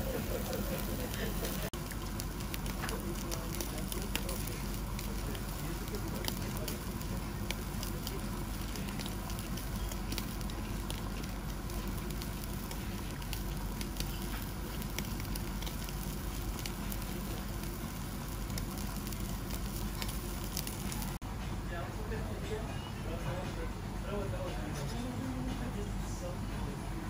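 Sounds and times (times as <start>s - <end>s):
beef sizzling on a grill: 0.0s - 21.2s
steady low hum: 0.0s - 27.0s
crackles and pops from fat: 0.4s - 21.2s.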